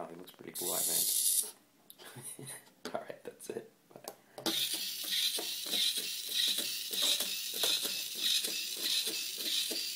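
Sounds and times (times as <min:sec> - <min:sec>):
small gear motor whirring: 0:04.5 - 0:09.9.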